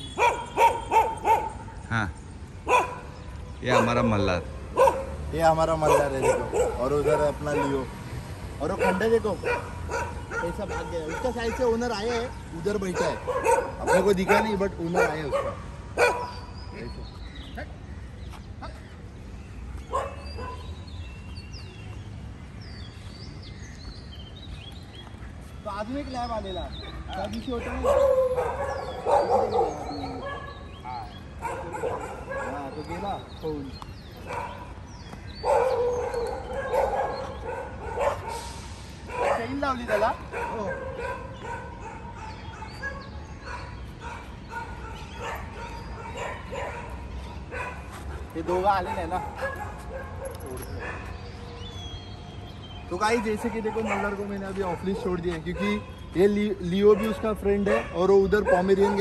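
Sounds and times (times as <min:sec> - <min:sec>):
birds chirping: 0:00.0 - 0:59.0
dog barking: 0:00.2 - 0:01.7, 0:02.6 - 0:08.0, 0:08.6 - 0:16.6, 0:19.9 - 0:20.8, 0:26.8 - 0:33.1, 0:34.2 - 0:38.4, 0:39.1 - 0:51.7, 0:53.1 - 0:56.0, 0:56.8 - 0:59.0.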